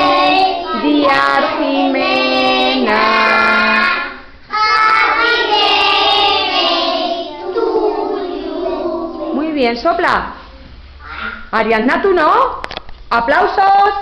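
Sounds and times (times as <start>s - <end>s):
children singing together: 0.0s - 9.4s.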